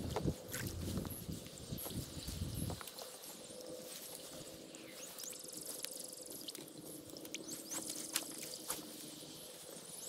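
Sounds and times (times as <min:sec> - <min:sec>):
insects trilling: 0:00.0 - 0:10.0.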